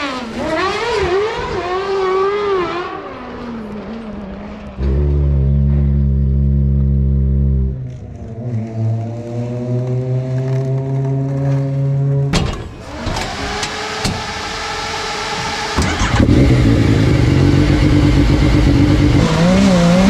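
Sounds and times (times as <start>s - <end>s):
vehicle engine running: 12.7s - 20.0s.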